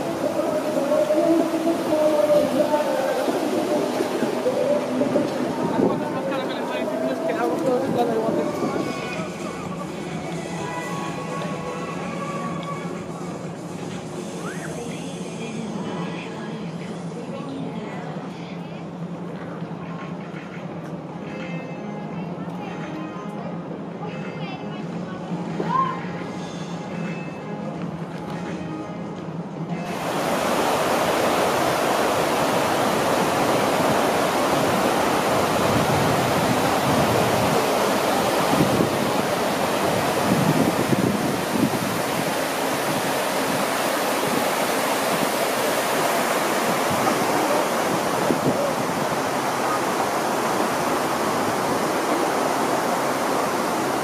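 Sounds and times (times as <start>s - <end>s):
waterfall rushing into pool: 0.0s - 12.9s, 29.8s - 54.0s
background music: 0.0s - 30.0s.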